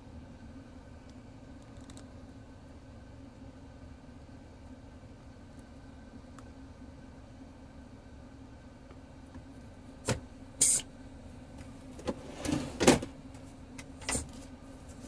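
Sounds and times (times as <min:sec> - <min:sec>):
vehicle engine idling: 0:00.0 - 0:12.0
short hiss: 0:10.6 - 0:10.9.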